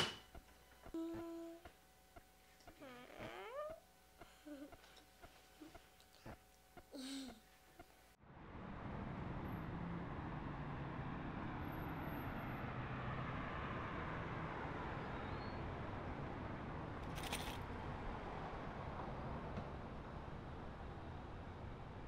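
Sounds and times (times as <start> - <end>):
distant traffic: 8.2 - 22.0.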